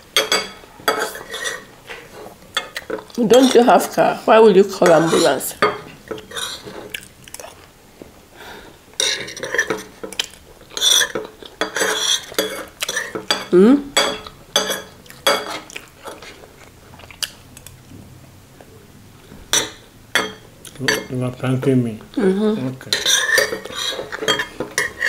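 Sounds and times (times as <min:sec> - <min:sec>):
cutlery clinking on ceramic plates: 0:00.1 - 0:02.0, 0:04.8 - 0:06.9, 0:09.0 - 0:16.3, 0:19.5 - 0:21.2, 0:22.9 - 0:25.0.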